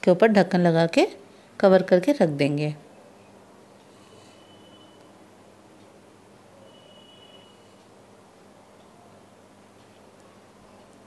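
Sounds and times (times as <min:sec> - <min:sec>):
low electrical hum: 0:00.0 - 0:11.0
faint high whine: 0:02.8 - 0:11.0.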